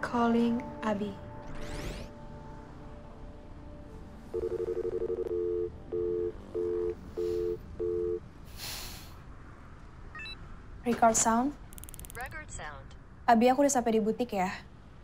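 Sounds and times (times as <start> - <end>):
rapid pulsing phone tone: 4.3 - 8.2
busy signal beeps: 10.2 - 10.4.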